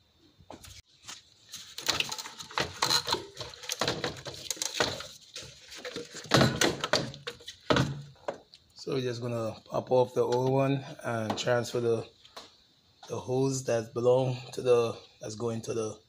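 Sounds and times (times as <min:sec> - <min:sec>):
clatter of engine parts handled: 0:00.6 - 0:08.6.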